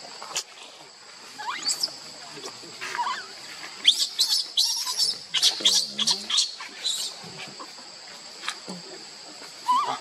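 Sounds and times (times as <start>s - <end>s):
baby monkey squealing: 1.4s - 2.0s, 3.0s - 7.2s, 9.6s - 10.0s.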